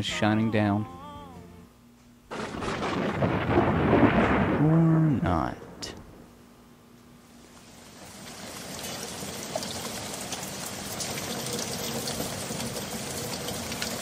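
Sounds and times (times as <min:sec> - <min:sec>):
steady rain falling: 0:02.3 - 0:06.2, 0:07.4 - 0:14.0.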